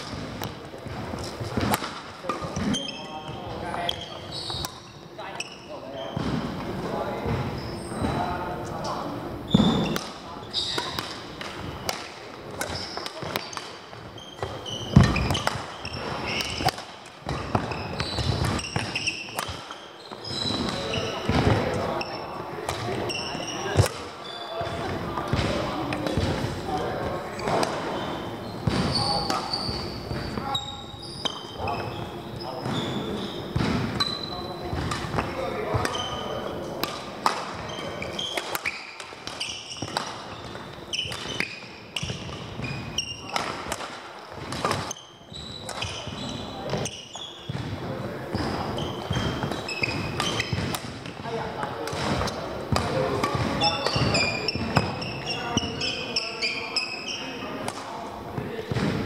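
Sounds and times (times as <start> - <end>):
racket hitting shuttlecock: 0.0 - 2.8, 9.6 - 19.8, 20.5 - 27.9, 34.7 - 45.0, 45.6 - 51.2, 51.8 - 55.9, 57.6 - 57.9
shoe squeaks on court floor: 0.0 - 43.7, 44.3 - 59.0.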